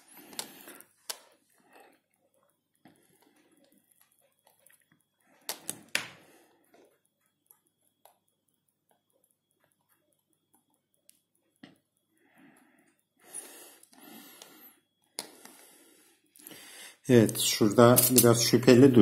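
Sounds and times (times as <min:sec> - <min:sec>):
soldering iron ticks: 0:00.0 - 0:16.4.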